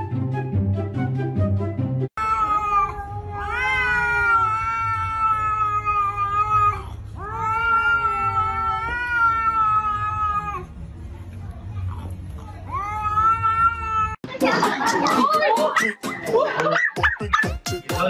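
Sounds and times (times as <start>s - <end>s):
cat yowling: 2.2s - 10.7s, 12.7s - 14.2s
music with steady beat: 14.3s - 18.0s.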